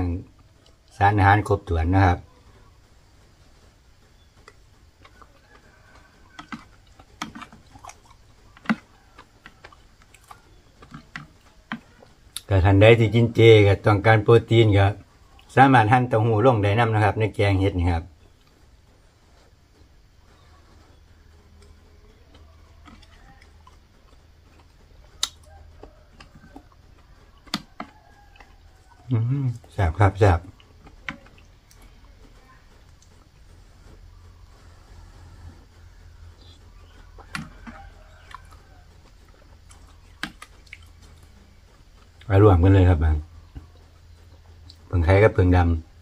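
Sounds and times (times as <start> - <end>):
faint low hum: 0.0 - 46.0
chewing clicks and smacks: 0.3 - 1.0, 4.1 - 12.5, 15.0 - 15.6, 20.7 - 29.8, 30.4 - 34.8, 35.6 - 42.3, 43.5 - 44.9.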